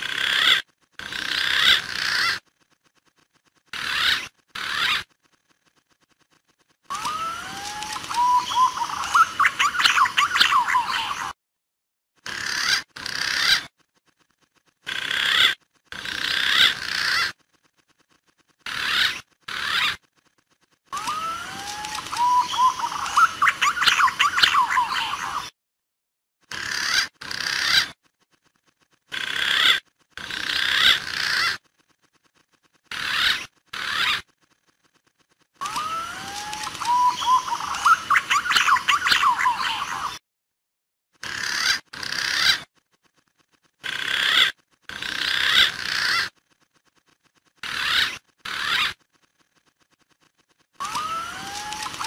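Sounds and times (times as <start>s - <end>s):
pigeon calls: 0.0s - 2.5s, 3.7s - 5.2s, 6.9s - 11.4s, 12.2s - 13.7s, 14.8s - 17.4s, 18.6s - 20.0s, 20.9s - 25.5s, 26.5s - 28.0s, 29.1s - 31.7s, 32.9s - 34.4s, 35.6s - 40.2s, 41.2s - 42.8s, 43.8s - 46.4s, 47.6s - 49.0s, 50.8s - 52.0s.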